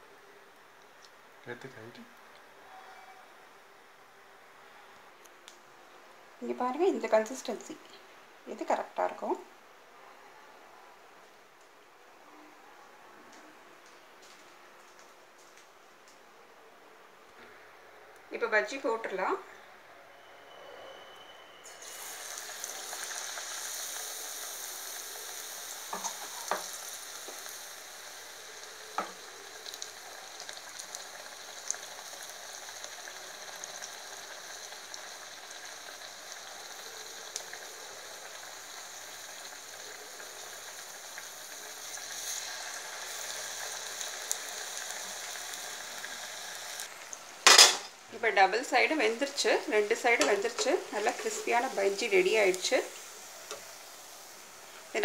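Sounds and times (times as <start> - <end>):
oil sizzling from deep-frying: 6.4 - 9.5, 21.6 - 55.0.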